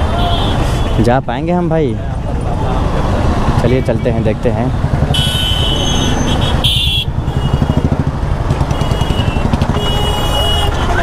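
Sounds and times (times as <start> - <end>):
motorcycle engine running: 4.7 - 11.0.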